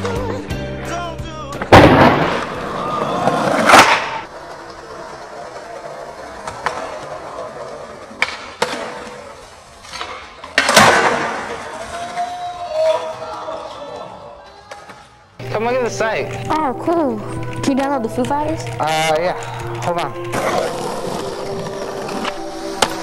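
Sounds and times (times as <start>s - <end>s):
skateboard pops and clacks: 1.6s - 4.3s, 8.1s - 9.1s, 9.9s - 11.6s
skateboard slap: 1.6s - 4.8s, 6.3s - 12.3s, 22.1s - 23.0s
skateboard landing: 1.6s - 12.4s, 20.3s - 23.0s
skateboard wheels rolling on concrete: 1.6s - 13.8s, 18.2s - 23.0s.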